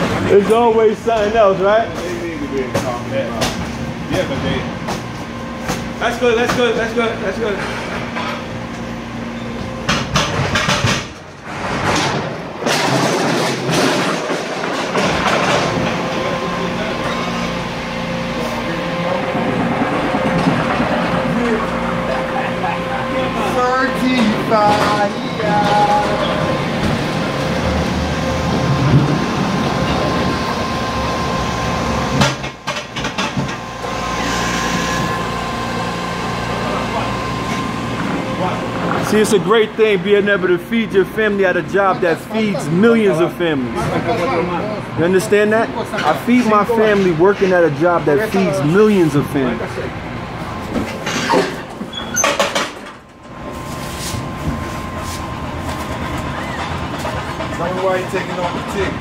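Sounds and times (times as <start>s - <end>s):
pallet jack rumbling: 0.0s - 59.0s.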